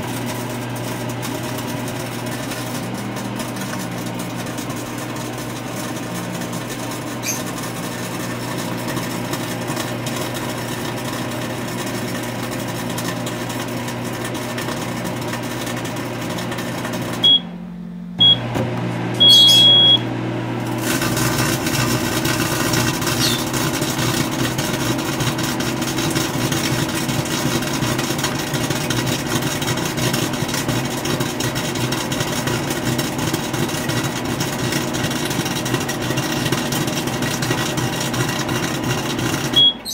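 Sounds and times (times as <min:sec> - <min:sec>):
microwave oven humming: 0:00.0 - 0:39.9
microwave beeps: 0:17.2 - 0:20.2, 0:23.2 - 0:23.5, 0:39.5 - 0:39.9.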